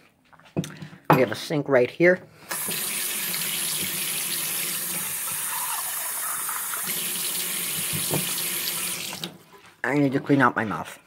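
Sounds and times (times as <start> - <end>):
tap water splashing in sink: 2.5 - 9.4.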